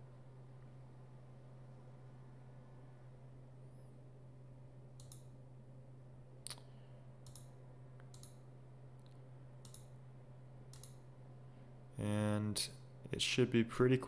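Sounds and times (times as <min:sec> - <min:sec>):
faint low hum: 0:00.0 - 0:14.0
computer mouse clicking: 0:05.0 - 0:05.3, 0:07.2 - 0:08.4, 0:09.0 - 0:09.9, 0:10.7 - 0:11.0.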